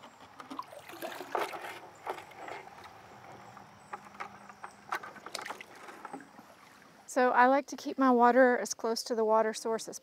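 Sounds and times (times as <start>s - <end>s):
water splashing and sloshing: 0.1s - 7.2s.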